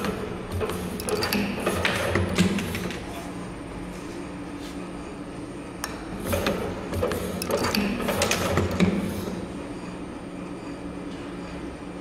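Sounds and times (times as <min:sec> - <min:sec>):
metallic clicks and clacks: 0:00.0 - 0:03.0.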